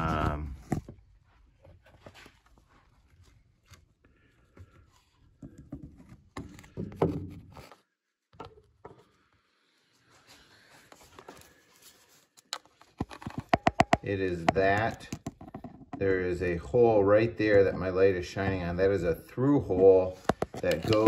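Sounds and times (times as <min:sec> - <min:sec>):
knocks and scrapes: 0:04.5 - 0:09.2, 0:10.3 - 0:21.0
handling rustles and clicks: 0:10.8 - 0:16.1, 0:17.5 - 0:21.0.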